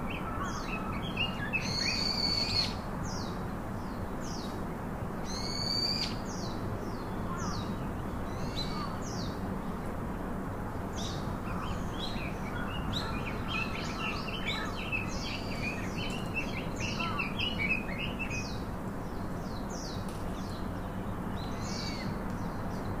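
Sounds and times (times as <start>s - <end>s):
small birds chirping: 11.0s - 23.0s.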